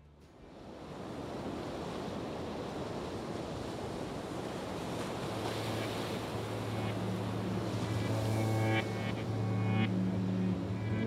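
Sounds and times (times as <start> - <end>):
steady rushing noise: 5.1 - 11.0
low steady hum: 5.4 - 11.0.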